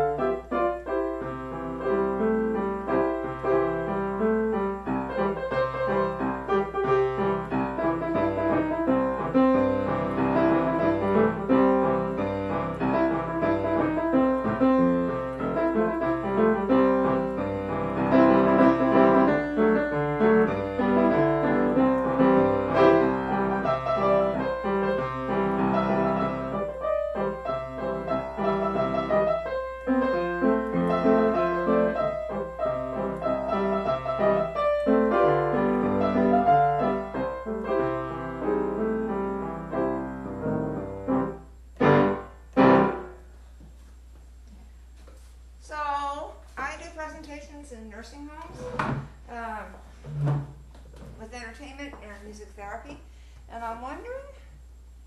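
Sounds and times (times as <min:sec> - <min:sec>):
solo piano playing: 0:00.0 - 0:43.4.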